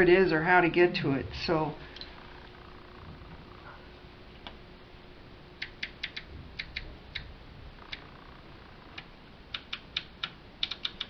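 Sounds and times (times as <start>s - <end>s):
rotary switch clicking: 9.0s - 11.0s.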